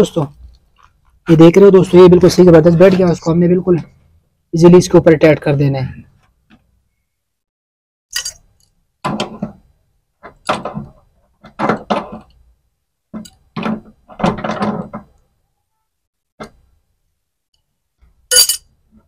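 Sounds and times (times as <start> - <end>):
metal hand tools clinking: 8.1 - 8.7, 18.3 - 18.7.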